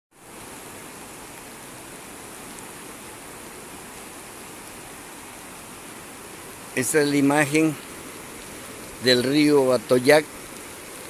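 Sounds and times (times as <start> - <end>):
river rushing: 0.2 - 11.0.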